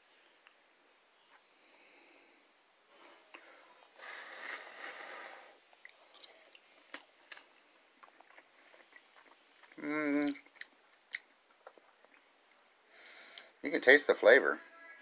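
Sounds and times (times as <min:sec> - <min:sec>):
chewing: 0:05.7 - 0:12.7.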